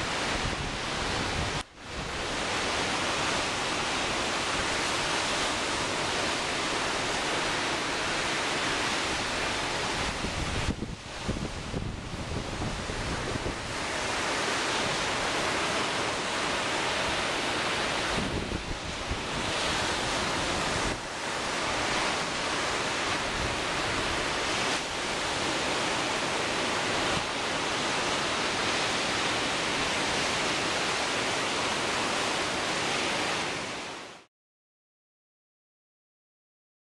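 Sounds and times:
surf crashing on shore: 0:00.0 - 0:34.3
wind buffeting microphone: 0:09.2 - 0:14.2, 0:17.9 - 0:25.2.

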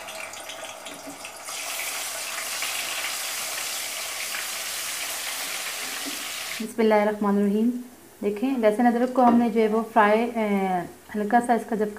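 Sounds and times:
paste sizzling in hot oil: 0:01.3 - 0:06.6.

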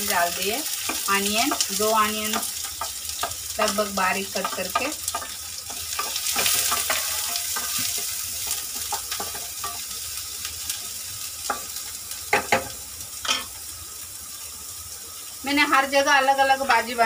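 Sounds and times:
onions sizzling in hot oil: 0:00.0 - 0:17.0
spatula scraping and tapping pan: 0:00.7 - 0:03.5, 0:04.3 - 0:09.9.

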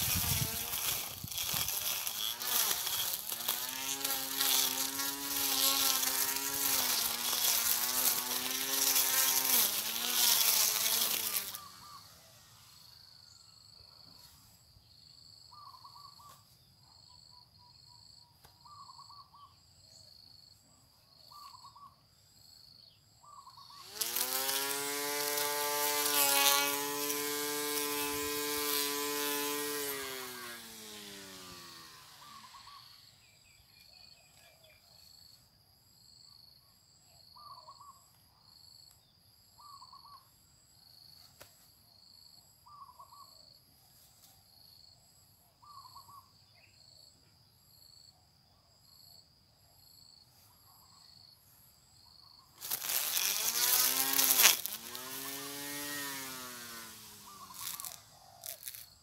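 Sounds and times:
electric grass trimmer whine: 0:00.0 - 0:13.1, 0:23.6 - 0:33.9, 0:52.6 - 0:59.0.

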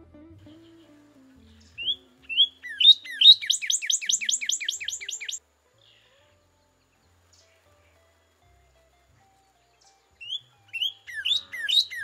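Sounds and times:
cardinal singing: 0:00.5 - 0:05.4, 0:09.4 - 0:12.0.

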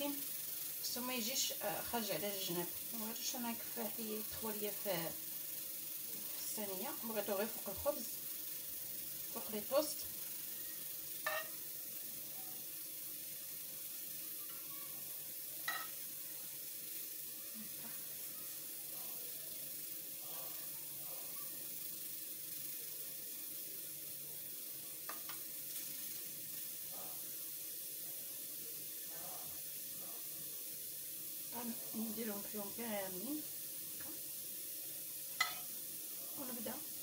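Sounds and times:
steady hiss: 0:00.0 - 0:37.0
spoon tapping and scraping: 0:11.2 - 0:11.6, 0:15.6 - 0:16.0, 0:35.4 - 0:35.7.

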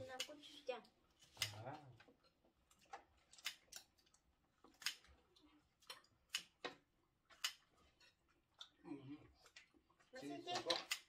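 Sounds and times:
scissors snipping crab shell: 0:04.7 - 0:05.1.

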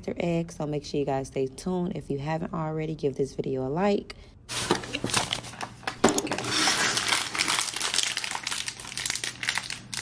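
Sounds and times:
plastic packaging crinkling: 0:04.5 - 0:10.0.

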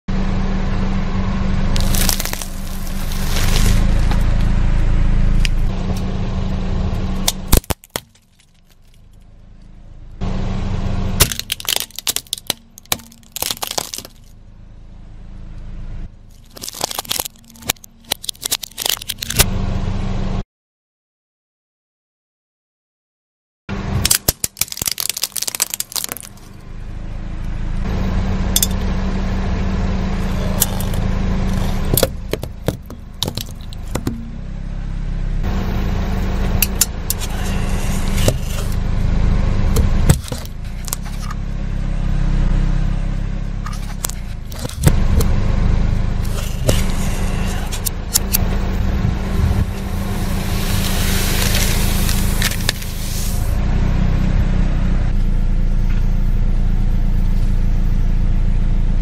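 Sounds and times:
car engine running low: 0:00.1 - 0:20.4, 0:23.7 - 0:59.0
tyre crushing plastic objects: 0:01.8 - 0:04.2, 0:07.2 - 0:09.0, 0:11.2 - 0:14.3, 0:16.4 - 0:19.4, 0:24.0 - 0:26.6, 0:30.5 - 0:34.2, 0:37.1 - 0:38.8, 0:39.8 - 0:41.3, 0:43.7 - 0:45.0, 0:46.2 - 0:48.3, 0:51.1 - 0:53.0.

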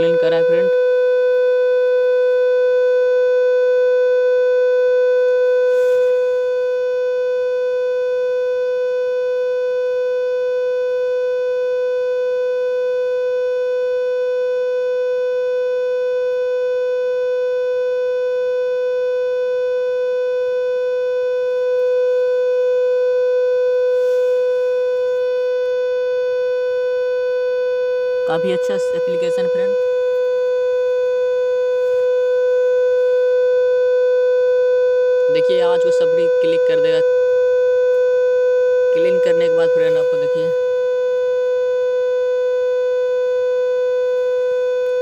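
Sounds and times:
steady test tone: 0:00.0 - 0:00.9, 0:28.2 - 0:30.2, 0:35.4 - 0:37.1, 0:38.9 - 0:40.8.

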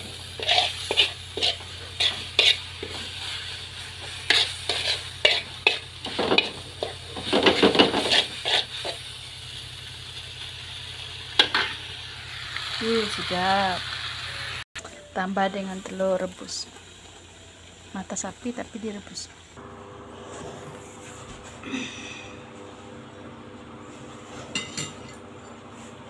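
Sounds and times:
utensil scraping a wok: 0:00.0 - 0:09.7
noodles sizzling: 0:00.0 - 0:23.1.

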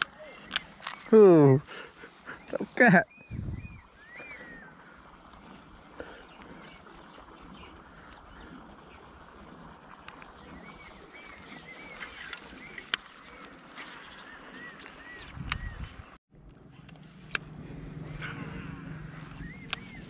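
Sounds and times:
steady outdoor hiss: 0:00.0 - 0:20.0
bird chirping: 0:18.0 - 0:20.0.

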